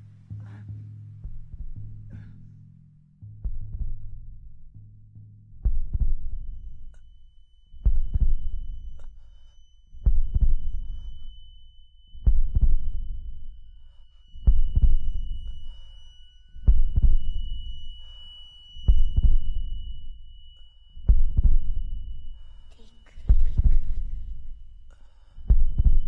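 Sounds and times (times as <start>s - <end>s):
heartbeat double thumps: 1.2s - 2.3s, 3.3s - 7.0s, 7.8s - 9.2s, 10.0s - 11.3s, 12.2s - 13.6s, 14.4s - 15.7s, 16.6s - 18.1s, 18.8s - 20.3s, 21.0s - 22.4s, 23.1s - 26.0s
high ringing tone: 6.5s - 26.0s.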